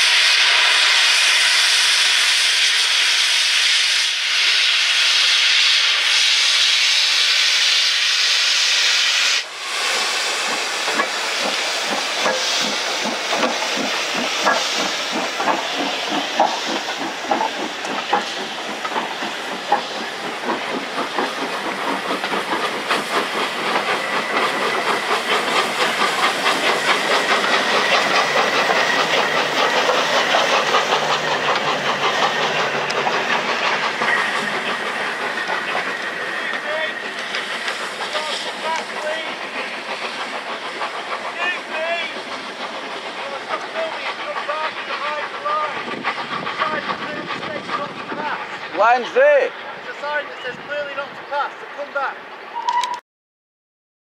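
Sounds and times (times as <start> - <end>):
steam locomotive hissing: 0.0 - 52.7
train wheels clickety-clack: 9.8 - 53.0.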